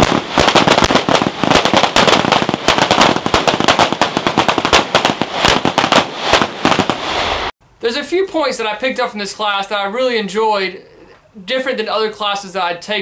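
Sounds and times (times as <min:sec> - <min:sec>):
rapid overlapping pistol fire: 0:00.0 - 0:07.2.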